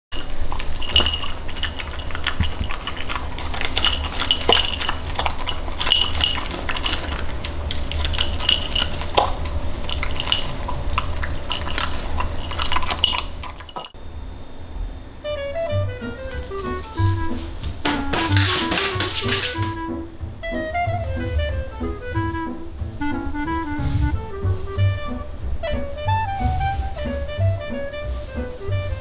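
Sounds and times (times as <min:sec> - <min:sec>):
dog eating from metal bowl: 0:00.1 - 0:14.0, 0:16.1 - 0:19.9.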